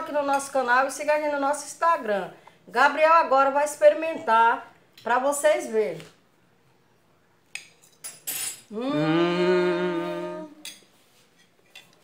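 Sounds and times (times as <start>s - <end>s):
person humming mmm: 8.7s - 10.7s.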